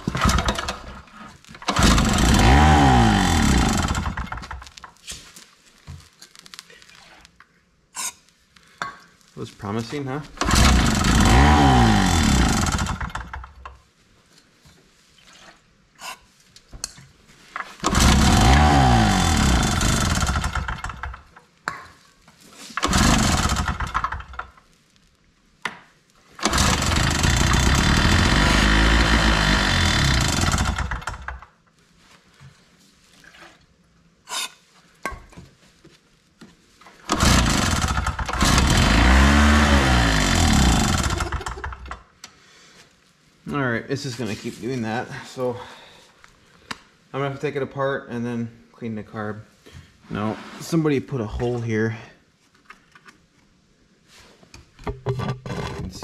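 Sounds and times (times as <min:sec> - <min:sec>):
generator engine revving: 0:00.0 - 0:00.9, 0:01.6 - 0:04.5, 0:10.4 - 0:13.4, 0:17.8 - 0:21.2, 0:22.8 - 0:24.4, 0:26.4 - 0:31.3, 0:37.1 - 0:41.8
generator pull-start: 0:00.0 - 0:04.7, 0:10.4 - 0:13.6, 0:17.8 - 0:21.3, 0:22.8 - 0:24.5, 0:26.4 - 0:31.4, 0:37.0 - 0:42.0.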